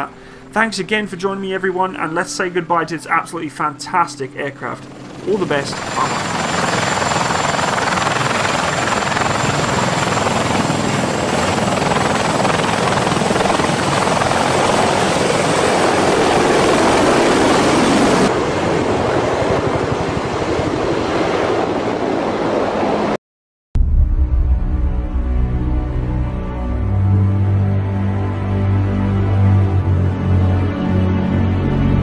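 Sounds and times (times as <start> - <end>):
helicopter running: 3.1 - 23.2
turbine whine: 4.7 - 19.1.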